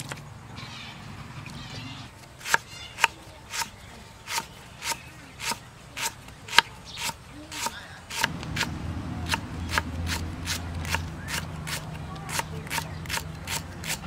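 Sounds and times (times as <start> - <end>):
knife chopping on wooden block: 2.4 - 3.7, 4.3 - 8.7, 9.3 - 14.0.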